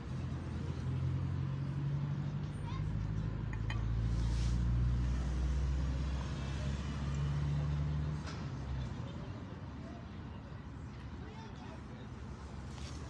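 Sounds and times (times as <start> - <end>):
engine humming: 0.0 - 8.8.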